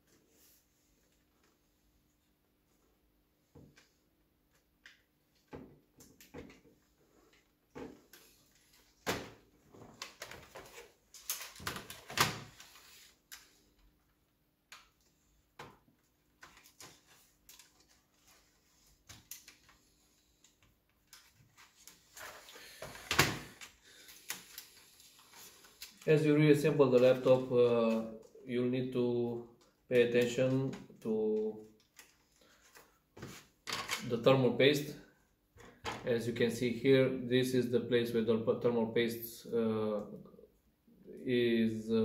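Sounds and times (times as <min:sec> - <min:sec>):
plastic laptop parts clicking: 0:10.0 - 0:12.4.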